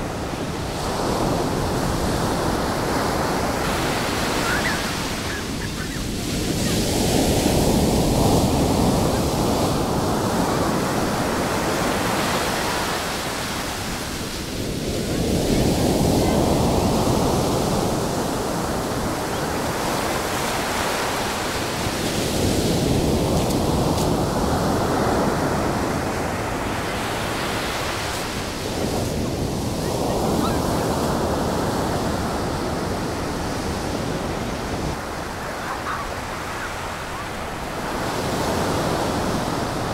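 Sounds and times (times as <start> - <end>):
heavy surf breaking on beach: 0.0 - 39.9.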